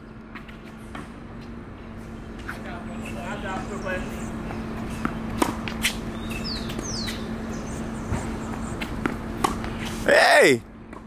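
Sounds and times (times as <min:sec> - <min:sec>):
tennis ball hitting racket: 0:04.9 - 0:06.0, 0:08.8 - 0:09.9.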